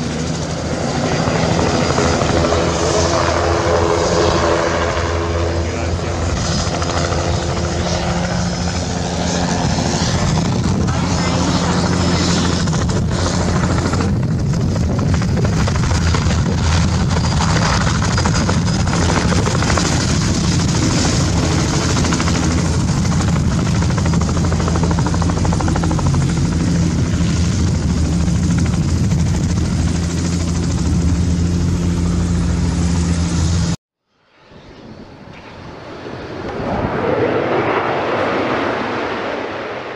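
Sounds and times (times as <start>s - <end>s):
helicopter rotor beat: 0.0s - 33.8s
turbine whine: 0.0s - 39.9s
whooshing swell: 34.2s - 39.9s.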